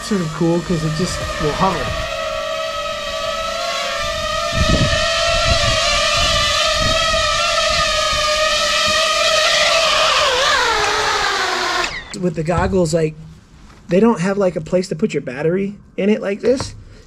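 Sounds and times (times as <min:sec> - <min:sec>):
drone propeller whine: 0:00.0 - 0:12.2
low thuds: 0:12.3 - 0:13.4, 0:16.4 - 0:17.0.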